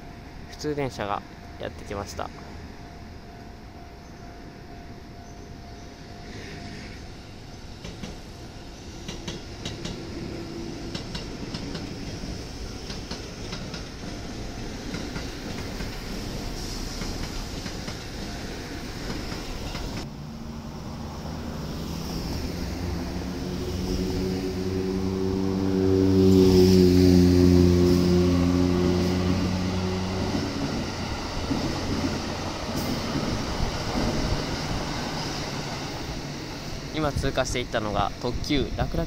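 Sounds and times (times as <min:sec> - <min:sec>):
electric train low hum: 0:00.0 - 0:39.0
train wheels clicking over rail joints: 0:07.8 - 0:08.3, 0:09.0 - 0:10.1, 0:10.9 - 0:18.3.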